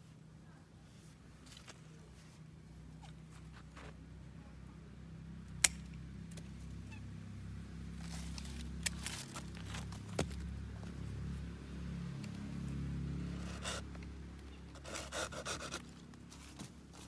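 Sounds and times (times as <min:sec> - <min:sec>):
pruning shears snipping twigs: 0:05.6 - 0:06.6, 0:08.0 - 0:10.5
rasping cuts: 0:13.3 - 0:14.1, 0:14.7 - 0:16.4.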